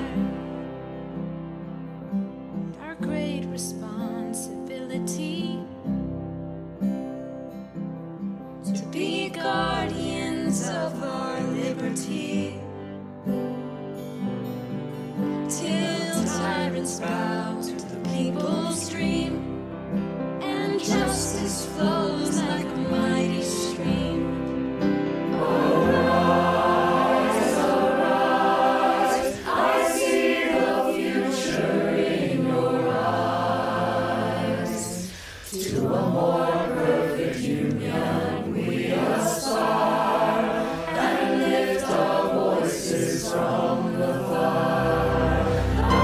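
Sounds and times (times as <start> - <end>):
mixed choir singing: 0.0 - 0.6, 8.8 - 12.6, 15.5 - 19.4, 20.4 - 46.0.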